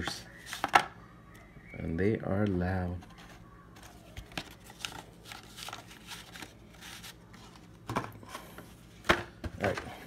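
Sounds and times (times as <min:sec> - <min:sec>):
cards and cardboard box handled: 0:03.0 - 0:08.2.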